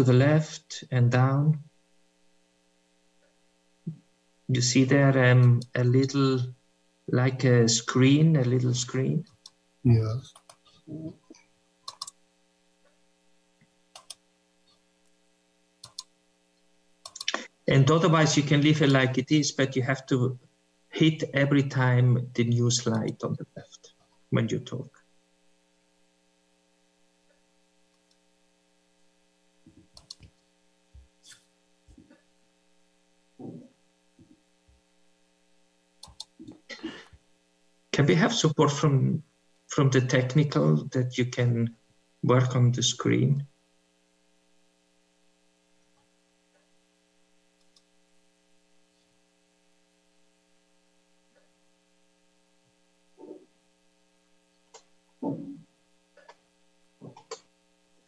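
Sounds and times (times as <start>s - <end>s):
faint electrical hum: 0.0s - 58.0s
faint clicks: 10.3s - 12.2s, 13.6s - 14.2s, 15.8s - 16.1s, 29.7s - 30.5s, 47.6s - 47.9s.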